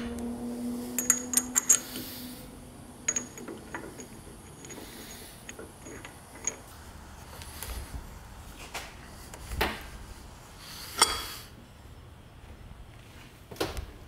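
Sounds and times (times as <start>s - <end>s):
steel tools clinking: 0.9s - 2.2s, 3.0s - 6.7s.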